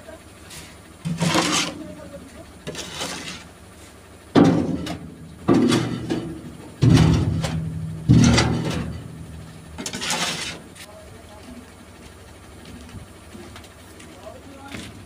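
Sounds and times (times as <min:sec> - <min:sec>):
hollow steel bed ringing: 0:04.3 - 0:10.7
shovel striking steel truck bed: 0:04.3 - 0:10.8.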